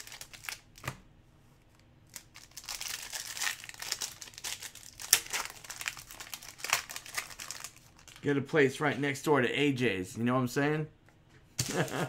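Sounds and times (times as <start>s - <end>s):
wrapper crinkling and tearing: 0.0s - 0.9s, 2.1s - 8.3s.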